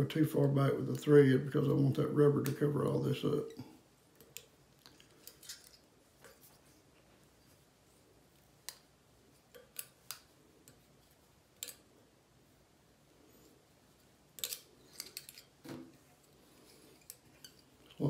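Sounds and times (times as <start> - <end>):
small metal tools clicking: 14.4 - 15.5.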